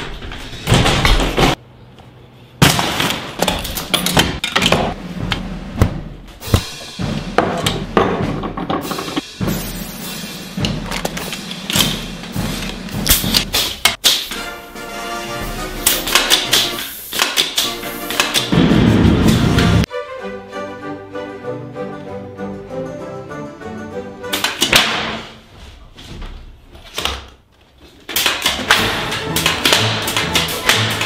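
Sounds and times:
background music with drum beat: 0:04.9 - 0:14.5, 0:28.7 - 0:31.0.

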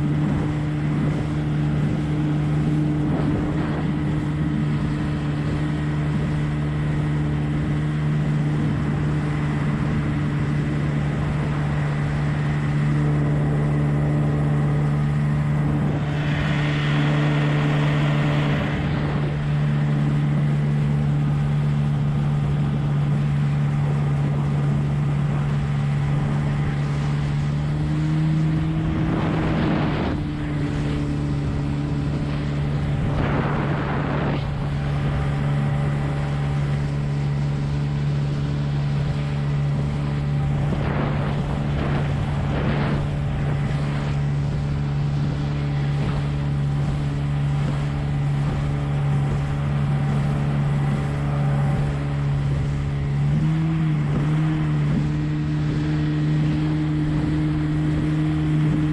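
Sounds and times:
outboard motor running: 0:00.0 - 0:58.9
short rushing noises: 0:28.2 - 0:37.8.

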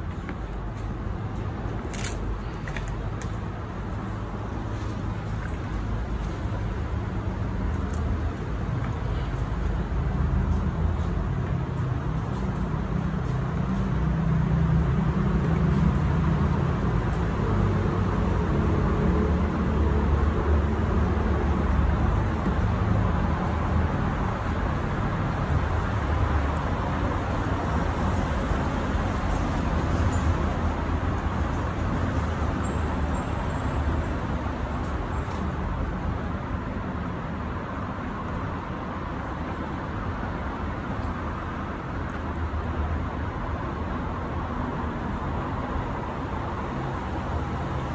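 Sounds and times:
low rumble of road traffic: 0:00.0 - 0:47.9.

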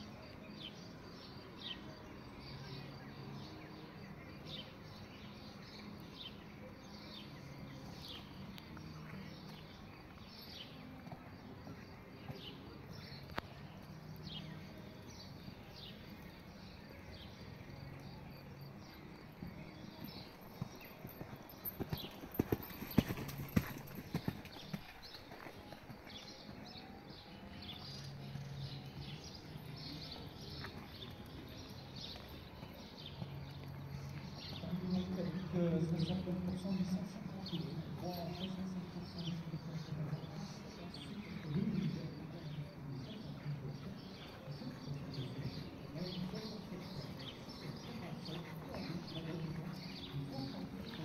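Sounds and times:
birds chirping: 0:00.0 - 0:51.0
horse hooves on sand: 0:07.8 - 0:51.0.

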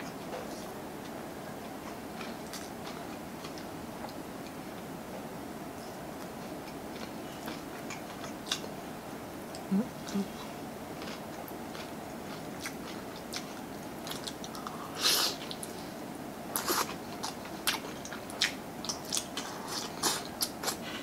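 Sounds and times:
chewing with mouth clicks: 0:01.8 - 0:04.6, 0:06.2 - 0:08.7, 0:09.5 - 0:14.8, 0:16.6 - 0:20.9.

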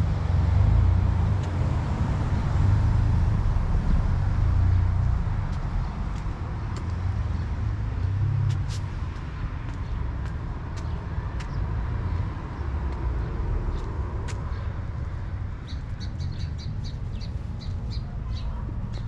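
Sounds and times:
road traffic rumble: 0:00.0 - 0:19.0.

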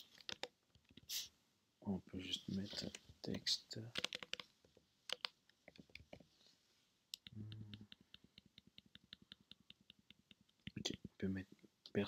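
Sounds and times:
keyboard keys clicking: 0:00.2 - 0:00.5, 0:03.9 - 0:04.4, 0:05.1 - 0:06.0
person humming low: 0:07.3 - 0:07.8.

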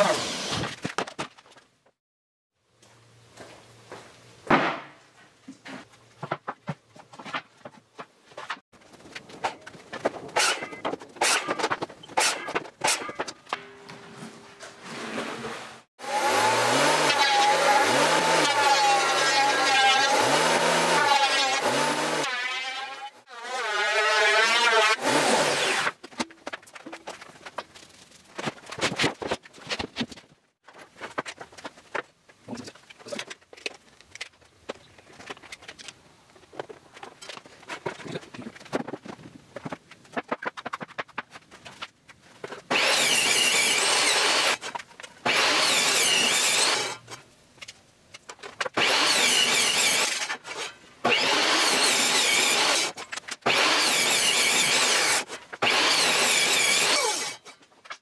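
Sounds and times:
table saw running: 0:16.0 - 0:22.3.

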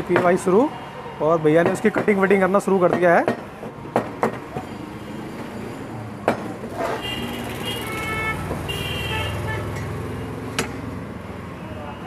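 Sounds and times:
street traffic hum: 0:00.0 - 0:12.0
vehicle horns tooting: 0:06.8 - 0:10.4.

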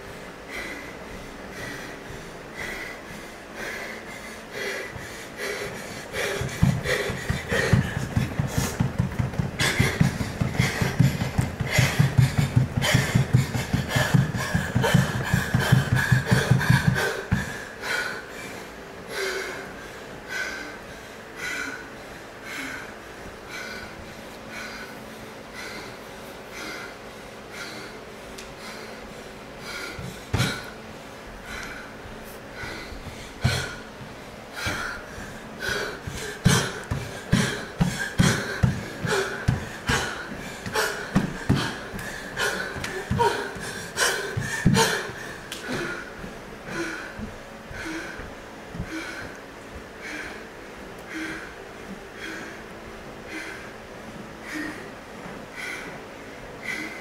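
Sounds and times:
hard breathing: 0:00.0 - 0:57.0
thudding steps and landings: 0:04.9 - 0:17.6, 0:32.1 - 0:47.4
stamping footfalls on floor: 0:06.3 - 0:17.5, 0:36.1 - 0:45.0.

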